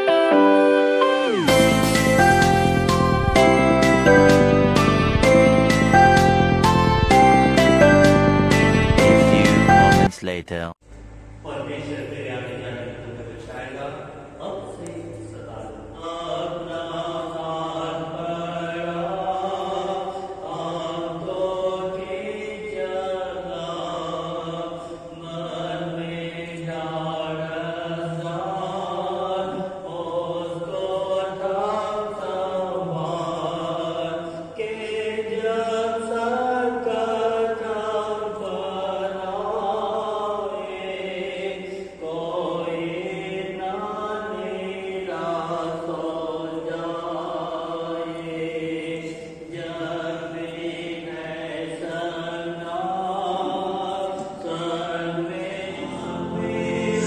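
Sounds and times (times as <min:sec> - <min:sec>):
group singing a slow hymn: 0:14.4 - 0:57.0.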